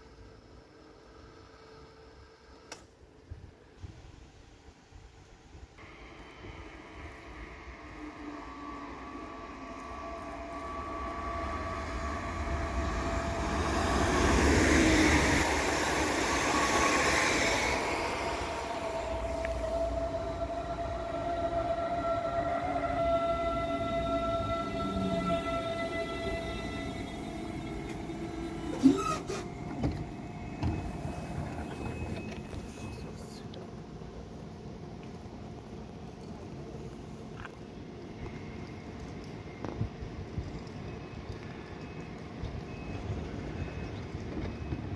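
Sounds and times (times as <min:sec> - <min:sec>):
electric train drive whine: 0:05.3 - 0:44.9.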